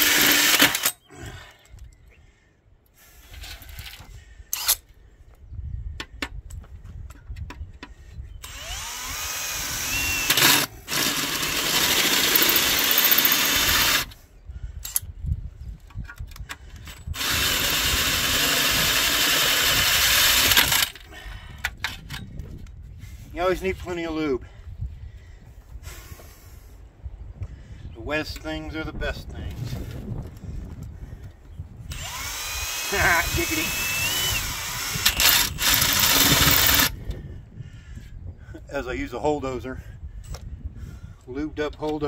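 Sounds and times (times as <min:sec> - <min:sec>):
drill hole saw cutting steel: 0:00.0 - 0:00.9, 0:08.4 - 0:14.2, 0:17.0 - 0:21.0, 0:31.9 - 0:37.0.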